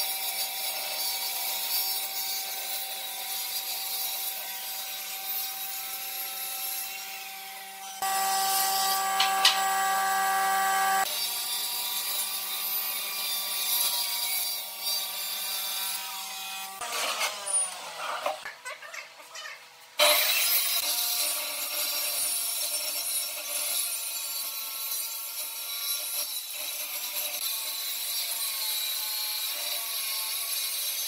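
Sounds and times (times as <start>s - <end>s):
rasping wood cutting noise: 0.0s - 18.5s, 20.0s - 31.0s
power tool whining: 4.9s - 18.4s.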